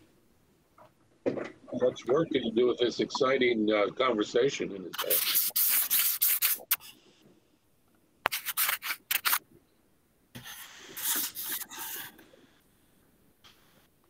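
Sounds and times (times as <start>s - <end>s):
scratchy rustling: 5.0s - 6.9s, 8.3s - 9.4s, 10.4s - 12.1s.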